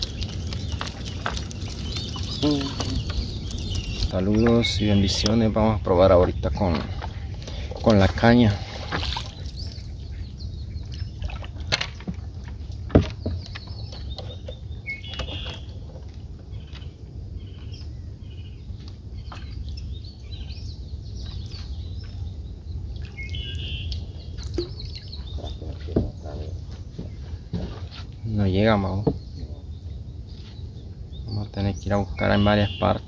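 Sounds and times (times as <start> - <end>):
steady low rumble: 0.0 - 14.1
birds chirping: 0.0 - 33.0.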